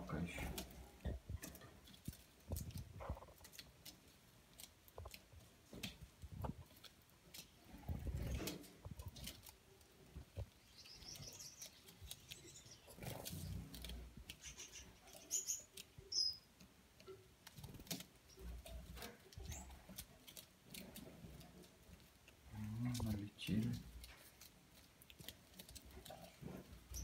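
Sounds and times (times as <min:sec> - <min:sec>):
beaks pecking seed on paper: 0:00.1 - 0:27.0
finches chirping: 0:10.6 - 0:16.5, 0:26.2 - 0:27.0.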